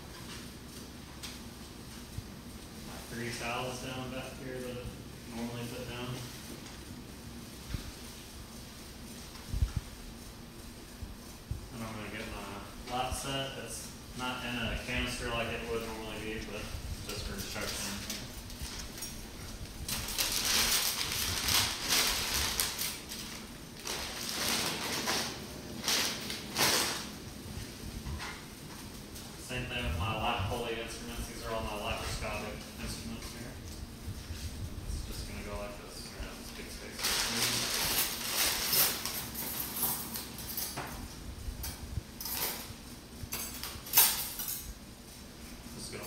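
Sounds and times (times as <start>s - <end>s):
paper crinkling and rustling: 17.1s - 27.1s, 36.5s - 40.4s
metal instruments clinking: 41.6s - 44.8s.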